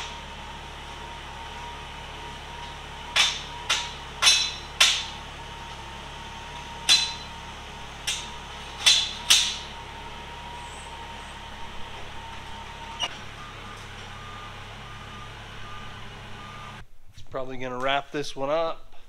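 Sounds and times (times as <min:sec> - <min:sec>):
reversing alarm beeping: 0:00.0 - 0:04.7, 0:05.4 - 0:16.8
machine whine and hum: 0:00.0 - 0:17.1
sharp metal clanks: 0:03.1 - 0:05.2, 0:06.6 - 0:09.8.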